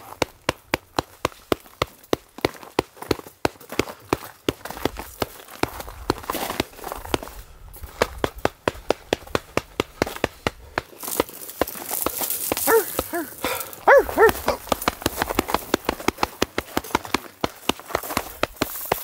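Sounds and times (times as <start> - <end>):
men hooting: 12.6 - 14.7.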